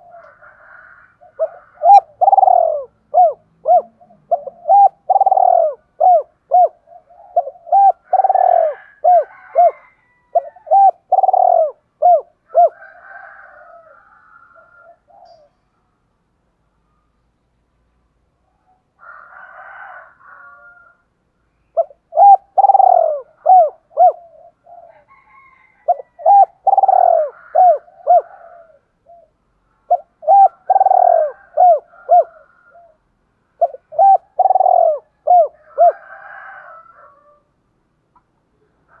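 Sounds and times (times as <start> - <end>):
dove cooing: 0.0 - 15.7, 21.6 - 33.0, 33.6 - 37.4.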